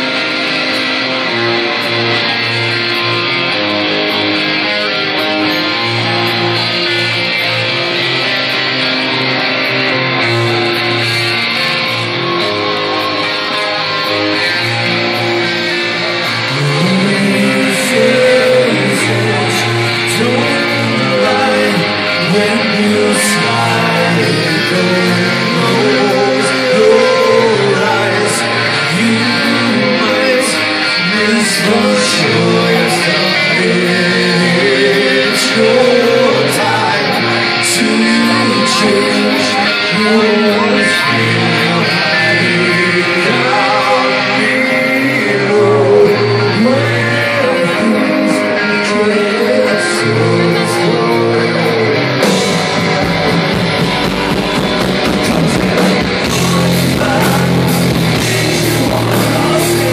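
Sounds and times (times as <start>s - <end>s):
electric guitars: 0.0s - 59.9s
man singing lead vocal: 0.0s - 59.9s.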